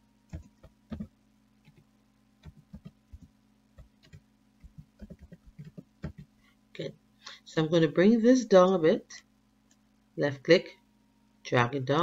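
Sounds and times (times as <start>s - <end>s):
faint steady hum: 0.0s - 12.0s
keyboard keys clicking: 0.3s - 1.1s, 4.0s - 6.3s.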